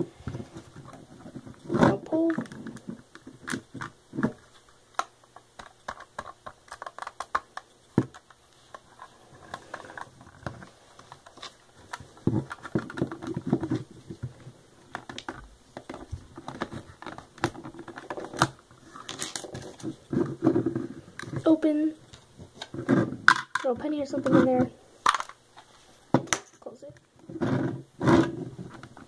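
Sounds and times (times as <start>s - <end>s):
plastic bricks clicking and knocking: 5.0s - 21.6s, 22.6s - 25.4s.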